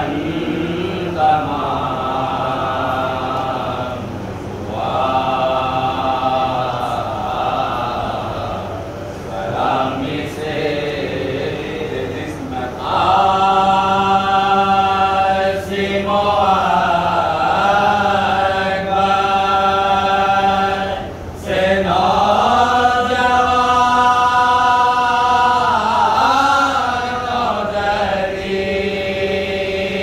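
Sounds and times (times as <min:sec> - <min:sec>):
men chanting together: 0:00.0 - 0:30.0.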